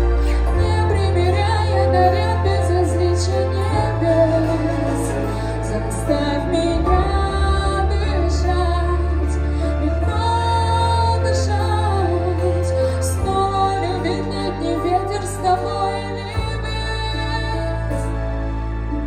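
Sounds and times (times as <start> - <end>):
woman singing: 0.0 - 18.2
pop ballad backing track: 0.0 - 19.0.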